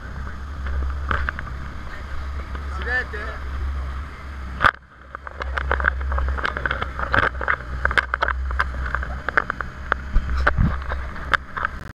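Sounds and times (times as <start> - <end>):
boat engine drone: 0.0 - 11.9
short irregular knocks and clicks: 4.6 - 11.8.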